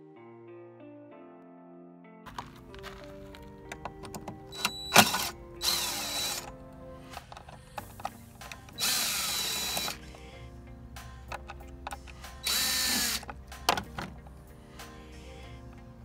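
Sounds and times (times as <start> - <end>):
background music: 0.0 - 16.0
tool and screw clicks: 3.7 - 10.2, 11.3 - 14.3
cordless drill running: 4.5 - 6.5, 8.7 - 10.0, 12.4 - 13.4.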